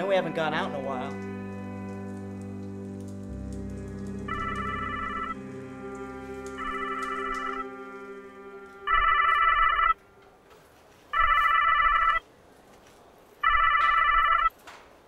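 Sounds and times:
held musical chord: 0:00.0 - 0:10.3
telephone ringing: 0:04.3 - 0:05.4, 0:06.6 - 0:07.8, 0:08.8 - 0:10.0, 0:11.2 - 0:12.2, 0:13.4 - 0:14.5.

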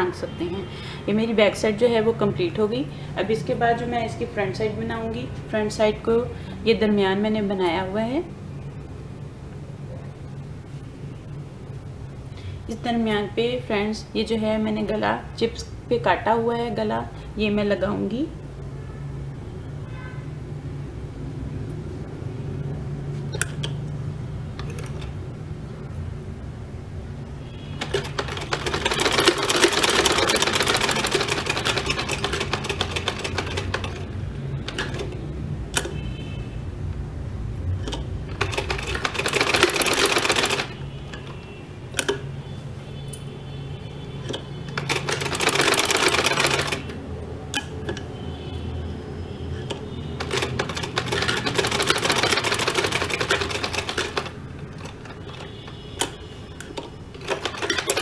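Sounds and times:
sewing machine stitching: 0:27.8 - 0:35.2, 0:37.9 - 0:40.8, 0:44.2 - 0:47.0, 0:49.6 - 0:58.0.

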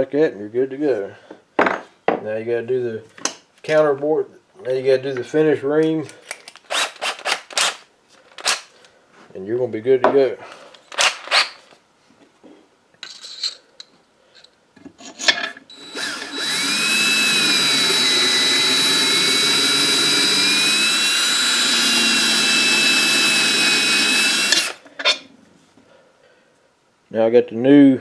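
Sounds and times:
power drill whining: 0:15.7 - 0:24.8.

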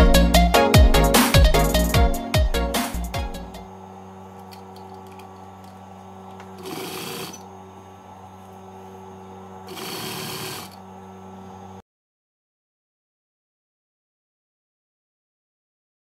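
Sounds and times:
steady low hum: 0:03.0 - 0:11.8
sewing machine stitching: 0:06.5 - 0:07.4, 0:09.7 - 0:10.8.

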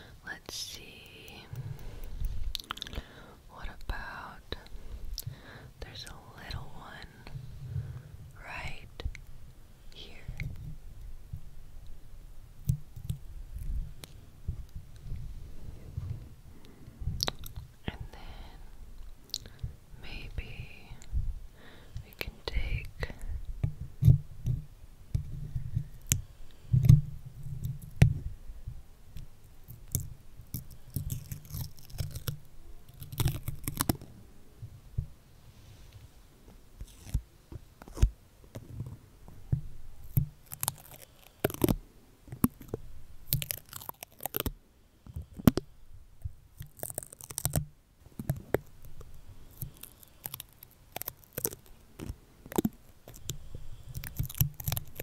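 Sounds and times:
sticker peeling noise: 0:29.2 - 0:34.1, 0:36.8 - 0:38.8, 0:40.0 - 0:44.6, 0:46.6 - 0:55.0
stickers crackling on microphone: 0:46.6 - 0:55.0.

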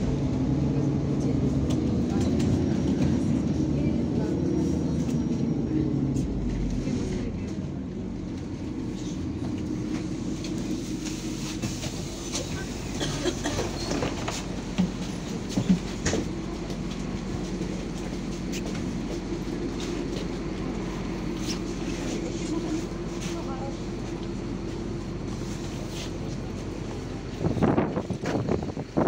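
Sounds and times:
bus engine drone: 0:00.0 - 0:29.0.

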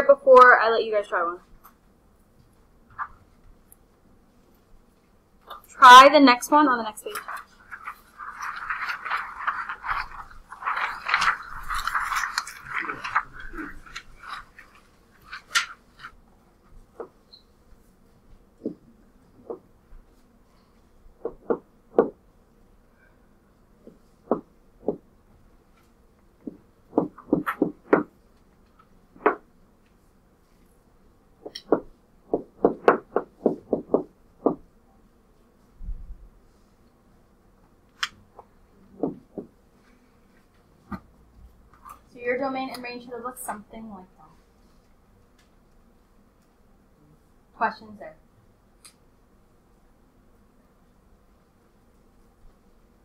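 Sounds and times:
paper rustling and crinkling: 0:07.0 - 0:16.2
stylus tapping on touchscreen: 0:31.4 - 0:34.6.

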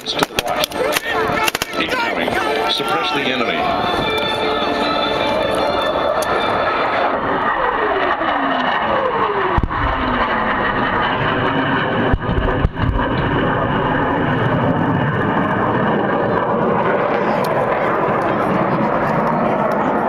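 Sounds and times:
jet engine roar passing overhead: 0:00.0 - 0:20.0
deep explosion booms: 0:09.5 - 0:15.2.

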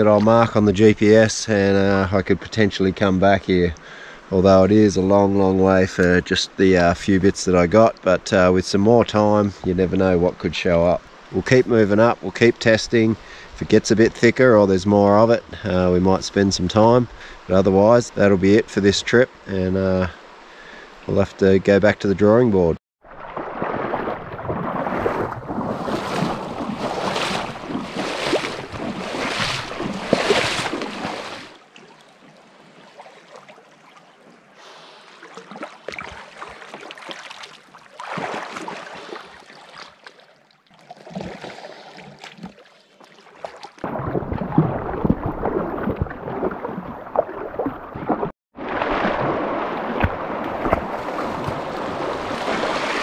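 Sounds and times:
river water flowing: 0:23.0 - 0:53.0.

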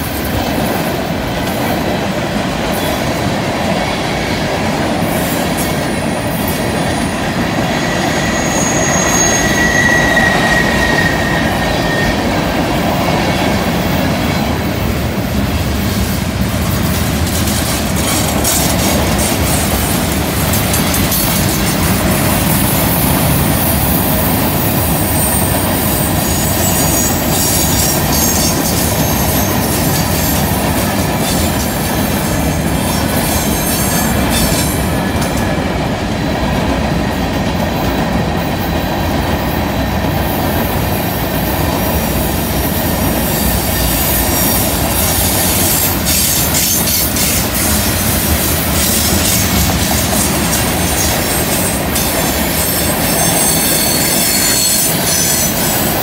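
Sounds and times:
clicking train wheels: 0:00.0 - 0:56.0
train wheel and rail rumble: 0:00.0 - 0:56.0
high-pitched wheel squeal: 0:07.0 - 0:12.5, 0:50.8 - 0:55.8.

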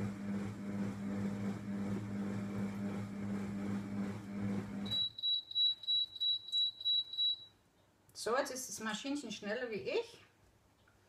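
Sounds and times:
food processor motor humming: 0:00.0 - 0:04.9.

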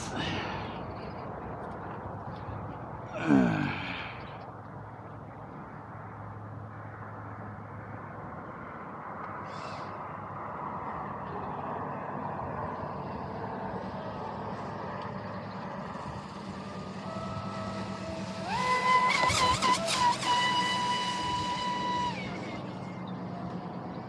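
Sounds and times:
rc boat rushing on water: 0:11.6 - 0:24.0
electric motor whine: 0:14.6 - 0:23.8.

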